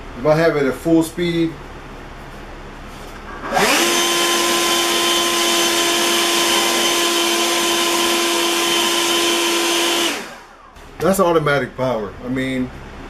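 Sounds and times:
leaf blower running: 3.3s - 10.8s.

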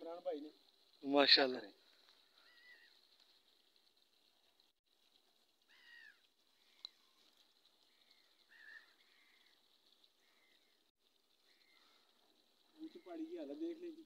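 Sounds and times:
faint animal calls: 2.2s - 3.4s, 5.6s - 13.4s.

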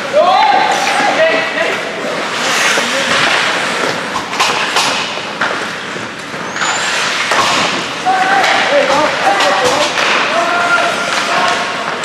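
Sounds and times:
hockey sticks and puck clacking: 0.0s - 12.0s
skate blades scraping ice: 0.6s - 12.0s
high squeak: 6.5s - 7.1s.

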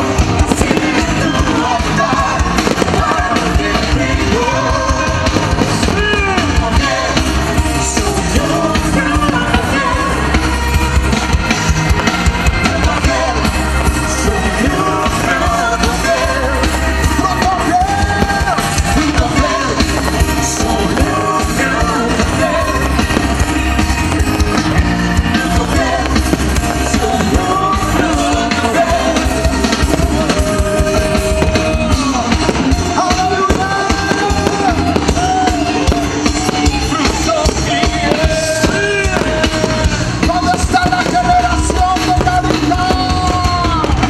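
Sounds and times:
person singing: 0.0s - 10.8s, 12.2s - 44.0s
steady bass beat: 0.0s - 44.0s.

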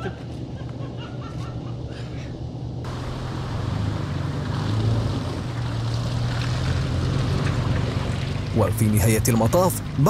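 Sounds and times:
engine running at low speed: 2.6s - 10.0s.

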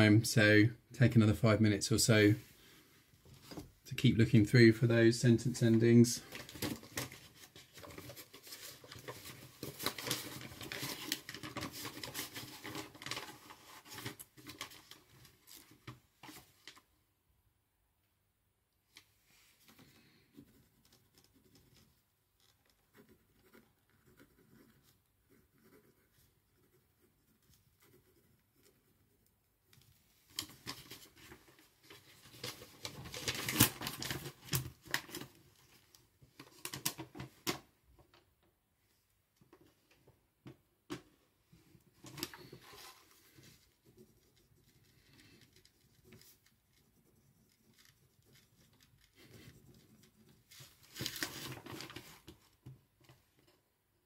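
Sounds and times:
paper rustling: 5.6s - 16.8s, 30.1s - 37.6s, 42.0s - 46.8s, 47.5s - 53.2s
pages being turned: 6.3s - 16.8s, 30.3s - 35.4s, 42.1s - 43.7s, 50.5s - 52.4s.

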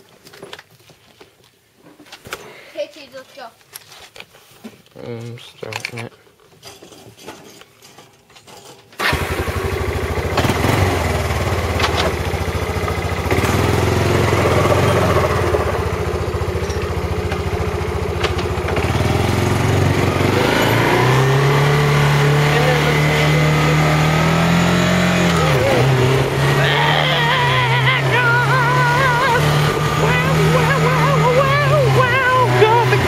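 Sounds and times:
small gasoline engine running: 9.0s - 33.0s.

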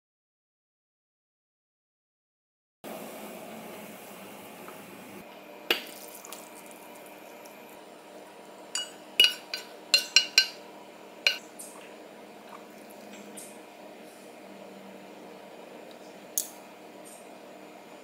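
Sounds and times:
steady hum: 2.9s - 18.0s
soup pouring into a bowl: 5.8s - 7.5s
cookware clinking against bowl: 8.7s - 10.6s.

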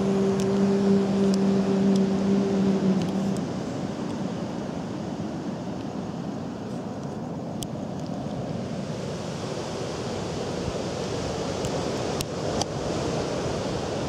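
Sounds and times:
steady outdoor rushing noise: 0.0s - 14.0s.

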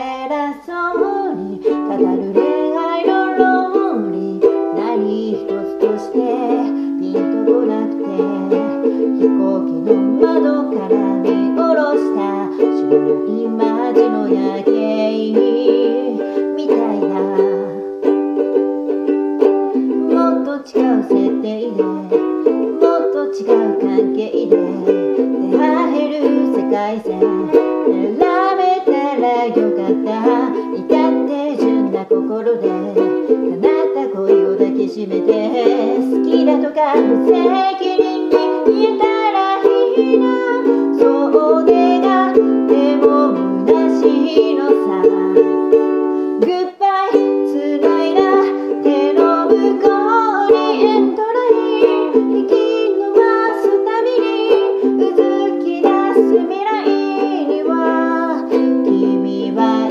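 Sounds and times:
ukulele strumming: 0.0s - 59.9s.

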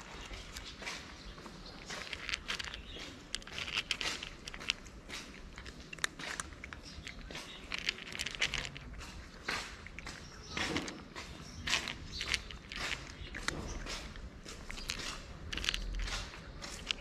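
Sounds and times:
cat crunching dry kibble: 0.0s - 17.0s.

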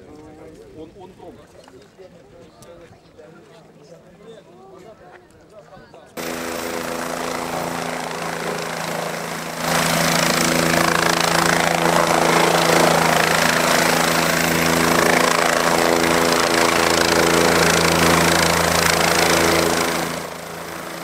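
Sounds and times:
helicopter hovering: 6.2s - 21.0s.

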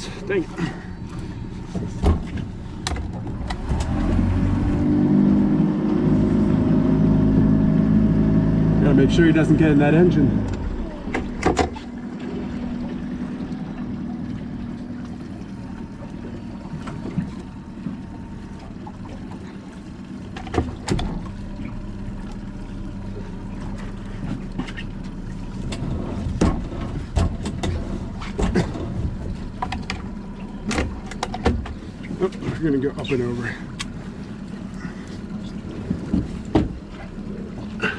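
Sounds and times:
outboard motor idling: 0.0s - 37.9s
sharp knocks and clicks: 25.7s - 31.8s.

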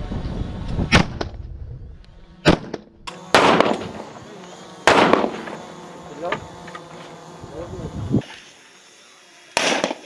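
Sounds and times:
gunshots: 2.4s - 4.0s, 4.8s - 5.6s, 9.6s - 10.0s.

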